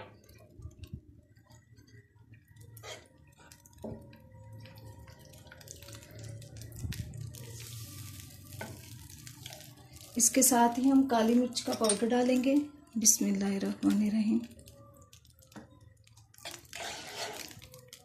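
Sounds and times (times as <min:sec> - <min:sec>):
spatula scraping frying pan: 0:16.4 - 0:17.6.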